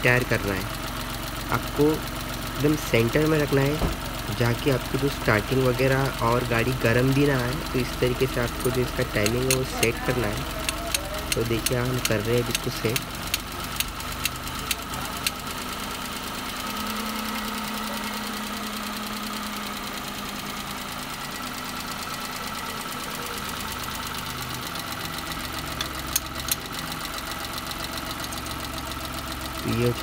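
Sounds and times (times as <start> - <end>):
car engine idling: 0.0 - 30.0
sharp clicks: 10.6 - 15.4.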